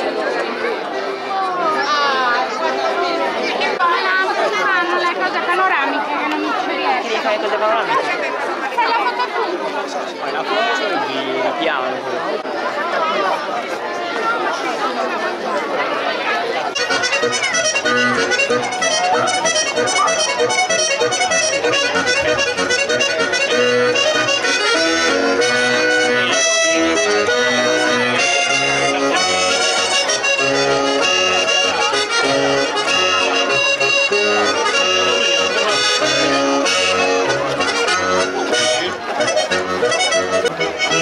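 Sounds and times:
accordion dance tune: 0:16.7 - 0:41.0.

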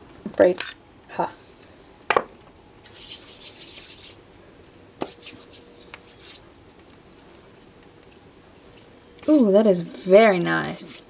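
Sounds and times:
hands rubbing skin: 0:02.8 - 0:04.2, 0:05.0 - 0:09.5.

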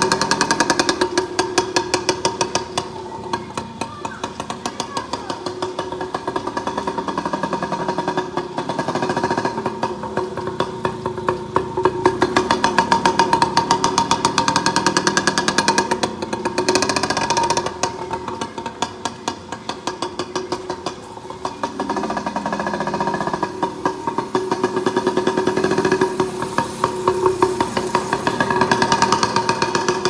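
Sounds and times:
dirt bike engine running: 0:00.0 - 0:30.0.

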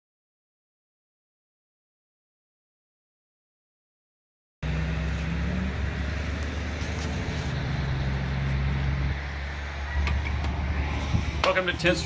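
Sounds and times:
low engine hum: 0:04.6 - 0:12.0
street traffic rumble: 0:04.6 - 0:12.0.

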